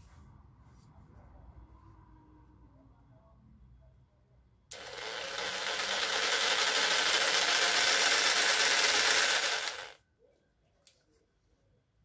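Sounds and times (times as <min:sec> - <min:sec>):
electric jigsaw running: 0:04.7 - 0:10.0.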